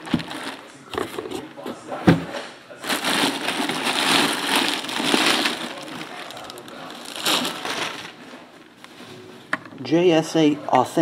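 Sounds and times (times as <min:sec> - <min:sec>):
plastic bag crinkling: 0:00.0 - 0:00.7, 0:02.8 - 0:08.3.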